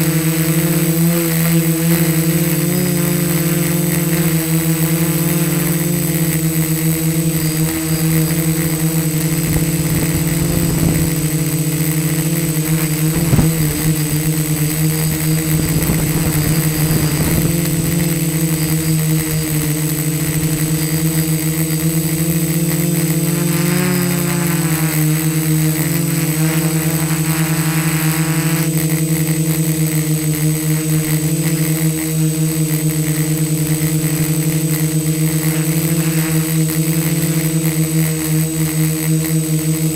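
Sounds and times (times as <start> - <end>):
quadcopter propellers buzzing: 0.0 - 39.9
wind rumbling on microphone: 7.4 - 22.0.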